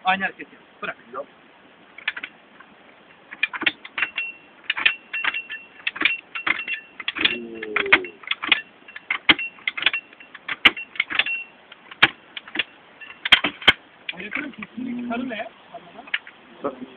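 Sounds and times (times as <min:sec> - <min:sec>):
jack clacking metal clicks: 0:02.0 - 0:14.7.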